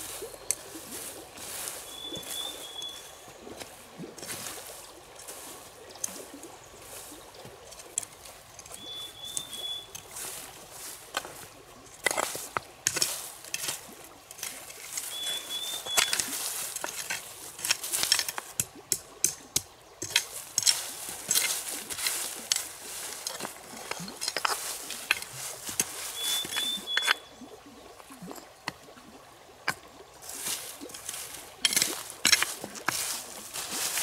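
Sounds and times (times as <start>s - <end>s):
rustling and handling noises: 6.9s - 18.7s, 19.3s - 27.2s, 30.2s - 34.0s.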